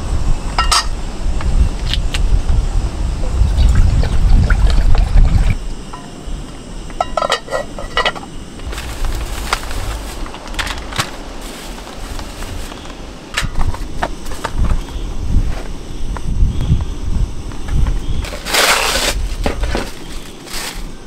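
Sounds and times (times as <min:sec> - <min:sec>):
metal cookware clinking: 0:00.6 - 0:00.9, 0:07.0 - 0:08.2.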